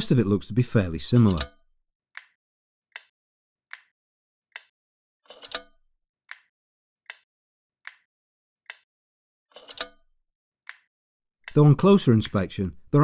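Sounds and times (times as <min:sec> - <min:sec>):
clock ticking: 0:00.0 - 0:01.6, 0:11.4 - 0:13.0.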